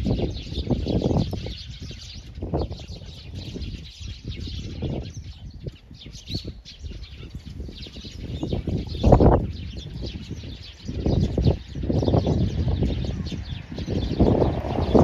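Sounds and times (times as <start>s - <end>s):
songbirds chirping: 0.0s - 15.0s
low rumbling bursts: 11.2s - 15.0s.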